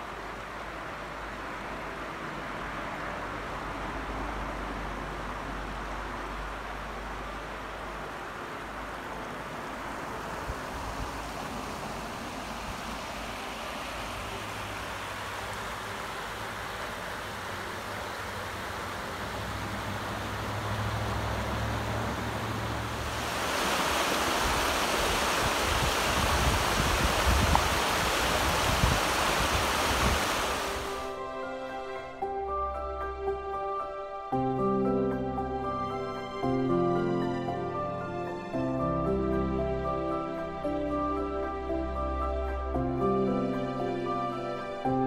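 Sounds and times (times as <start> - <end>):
river rushing over rocks: 0.0 - 32.8.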